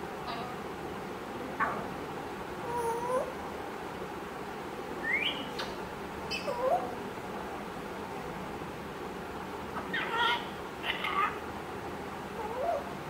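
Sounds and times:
parrot calling and whistling: 5.0 - 6.9, 9.8 - 11.4.

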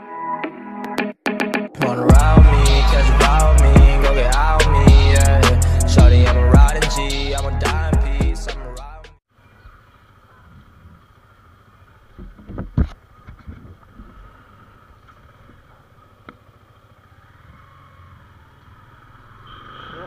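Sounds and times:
motorcycle engine running: 14.5 - 20.0.

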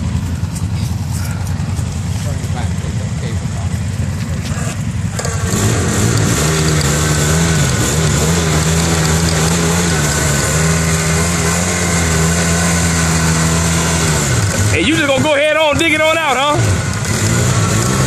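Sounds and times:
atv engine revving: 0.0 - 18.0
wheels spinning in mud: 3.7 - 18.0.

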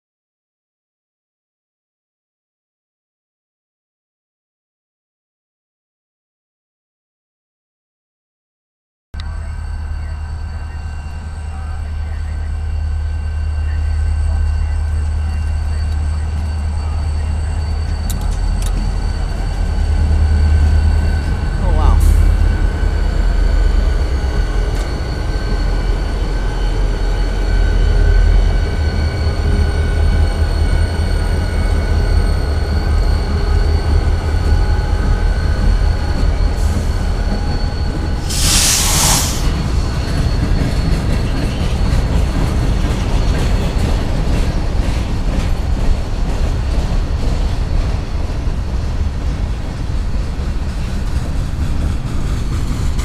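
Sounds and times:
high wheel squeal: 9.2 - 42.2
train wheels rumbling on rail: 9.2 - 53.0
rail clicking: 15.0 - 19.8, 38.3 - 53.0
loud air hiss: 38.2 - 40.0.

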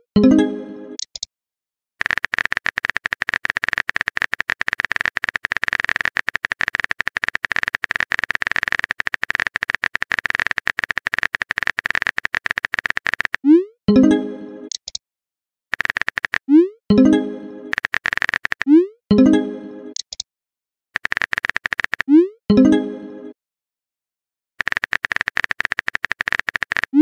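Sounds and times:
phone keyboard typing clicks: 1.0 - 1.3, 2.0 - 13.4, 14.7 - 15.0, 15.7 - 16.5, 17.7 - 18.8, 19.9 - 20.2, 21.0 - 22.2, 24.6 - 27.0
message tone: 16.5 - 17.8, 18.7 - 20.0.

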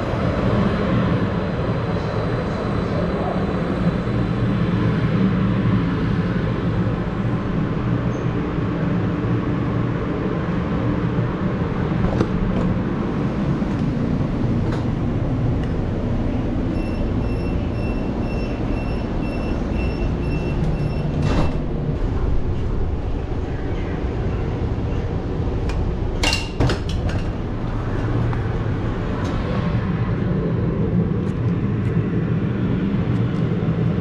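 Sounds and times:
train low hum: 0.0 - 34.0
high door warning beeps: 16.7 - 21.6.

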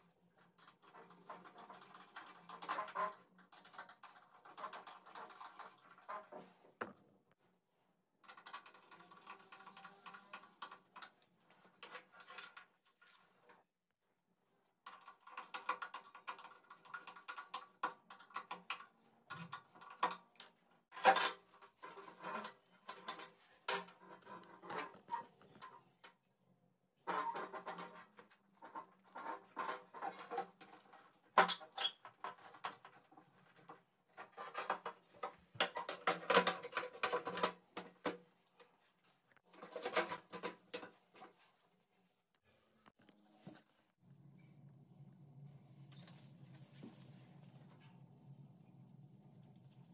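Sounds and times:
clicks and metallic clatter: 27.1 - 38.7.

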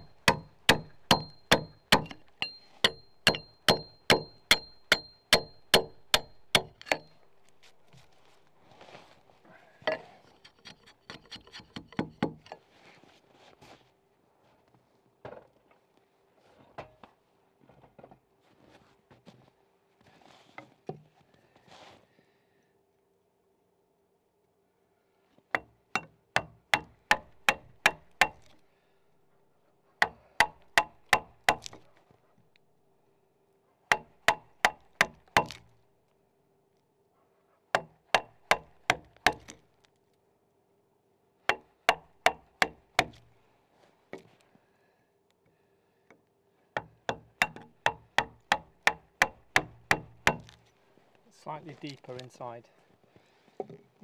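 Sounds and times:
axe chopping wood: 0.0 - 7.8, 25.6 - 28.6, 30.0 - 31.9, 33.9 - 35.7, 37.8 - 39.6, 41.5 - 43.3, 46.8 - 50.6.

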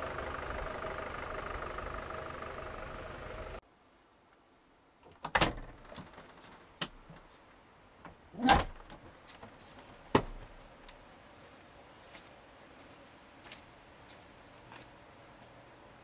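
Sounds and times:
van door clunks and knocks: 10.1 - 10.5.

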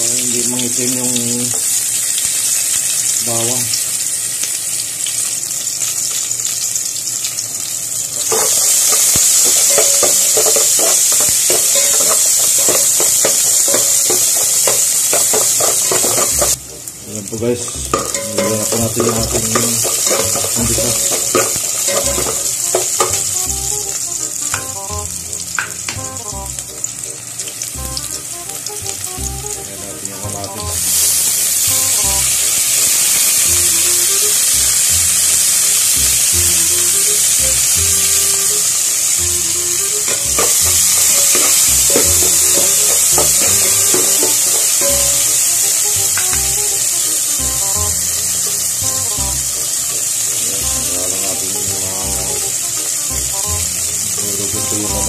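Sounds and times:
food sizzling in hot oil: 0.0 - 55.0
metal spoon scraping pot: 8.2 - 16.6, 18.0 - 23.3.

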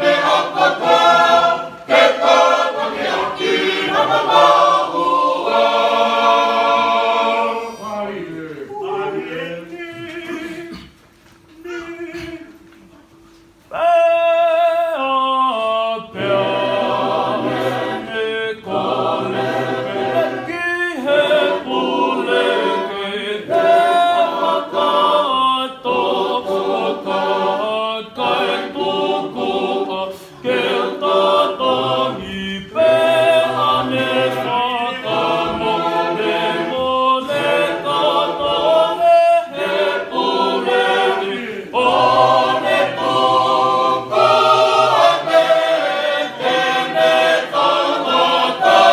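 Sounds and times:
choir singing a hymn: 0.0 - 11.0, 13.7 - 48.9.

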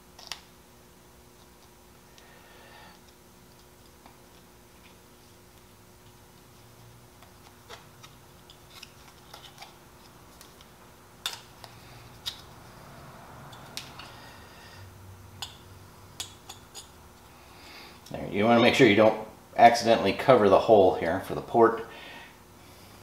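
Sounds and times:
tape crinkling: 7.2 - 12.6.

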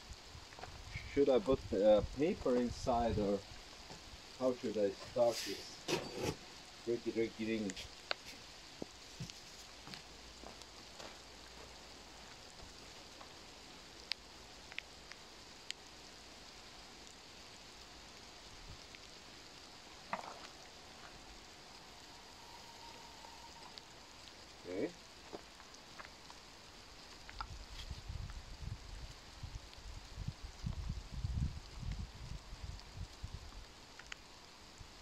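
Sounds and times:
light rain pattering: 0.0 - 35.0
faint thin whistle: 22.0 - 24.0.

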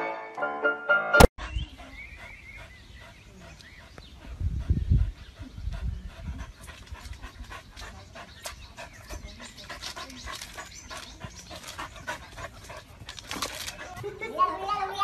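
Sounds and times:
dog panting: 1.4 - 15.0.

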